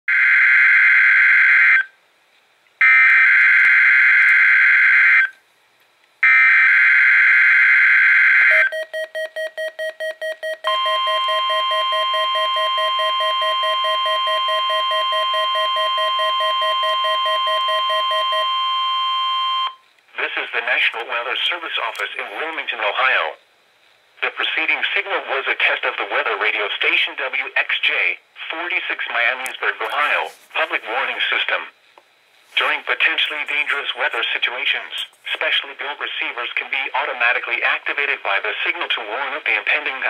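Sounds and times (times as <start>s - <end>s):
steady warning alarm tone: 0.1s - 1.9s, 2.8s - 5.4s, 6.2s - 19.8s.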